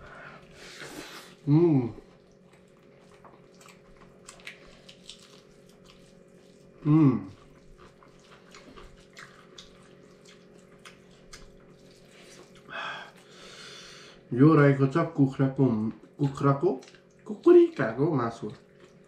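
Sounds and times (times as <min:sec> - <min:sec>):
chewing mouth clicks and smacks: 0:02.2 - 0:06.6, 0:07.3 - 0:12.7, 0:16.0 - 0:19.0
short voiced hum: 0:06.8 - 0:07.4.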